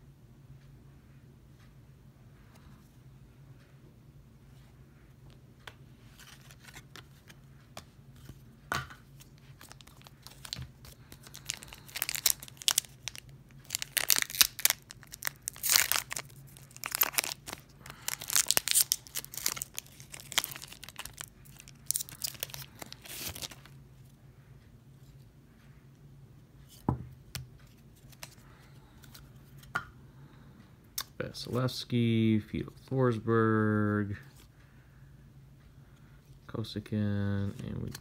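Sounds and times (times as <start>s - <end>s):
foil wrapper tearing and crinkling: 9.6s - 23.7s.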